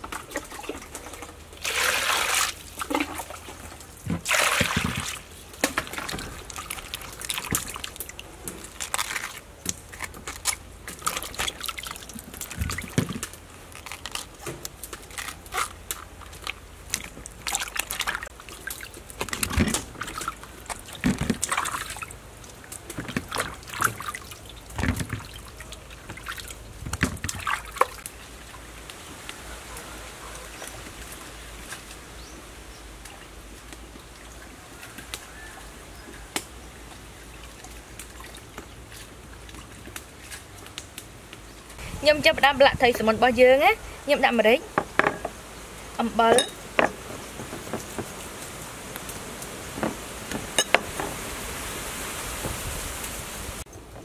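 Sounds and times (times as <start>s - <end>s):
water splashing in a basin: 0.0s - 28.9s, 33.0s - 40.9s.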